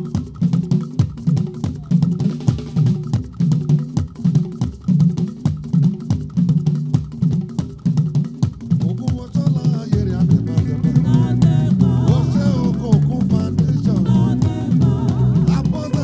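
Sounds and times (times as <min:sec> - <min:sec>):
drum kit groove: 0:00.0 - 0:16.0
repeating bass line: 0:10.0 - 0:16.0.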